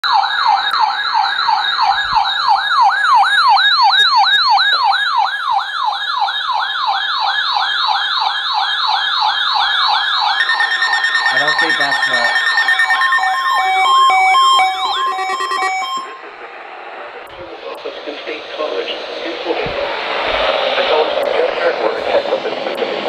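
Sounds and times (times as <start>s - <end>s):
rising whoop siren alarm: 0.0s - 17.3s
steady alarm tone: 0.0s - 17.4s.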